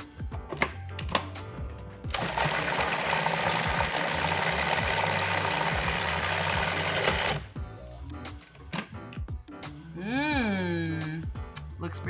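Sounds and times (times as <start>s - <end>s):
food processor running: 2.1s - 7.5s.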